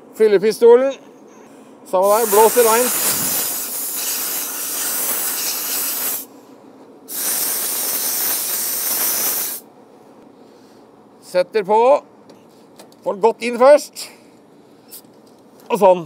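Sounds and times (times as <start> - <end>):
compressed air blow gun hissing: 2.0 - 6.3, 7.1 - 9.6.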